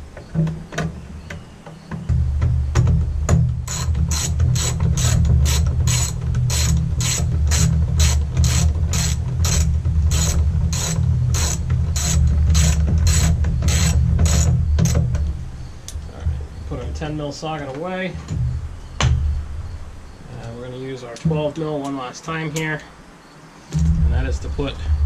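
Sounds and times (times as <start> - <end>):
hand ratchet clicking: 3.6 - 15.1
low rumble: 4.8 - 21.0, 23.7 - 25.0.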